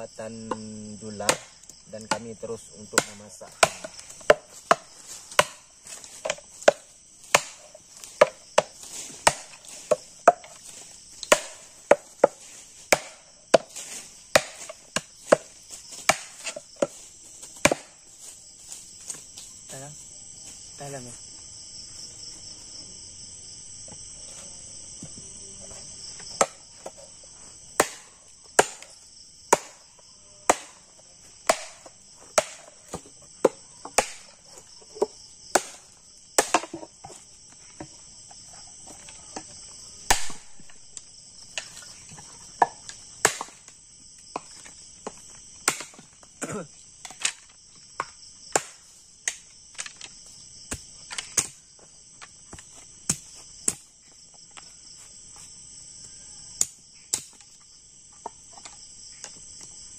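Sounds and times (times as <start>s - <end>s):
night insects chirring: 0.0s - 59.9s
blade chopping bamboo: 1.2s - 2.3s, 2.9s - 18.0s, 27.8s - 29.9s, 30.5s - 37.2s, 40.0s - 40.8s, 42.6s - 43.7s, 45.6s - 46.1s, 48.5s - 49.8s, 52.5s - 53.9s.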